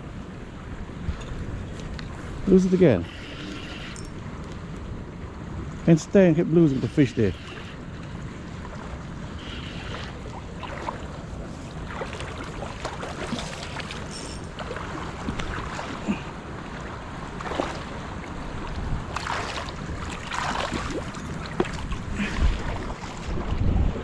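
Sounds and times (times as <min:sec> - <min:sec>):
river water gurgling: 0:02.0 - 0:23.7
wind buffeting microphone: 0:07.8 - 0:24.0.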